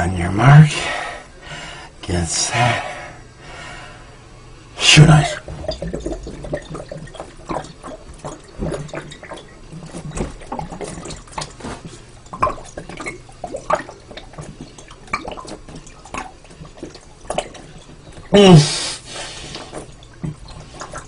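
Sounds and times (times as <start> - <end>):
gulping swallows: 4.8 - 21.0
liquid glugging from glass bottle: 5.1 - 21.0.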